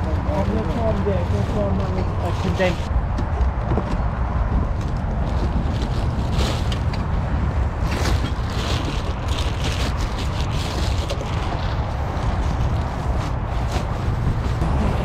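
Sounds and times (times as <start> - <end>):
steady low rumble: 0.0 - 15.0
plastic bags rustling: 5.2 - 14.6.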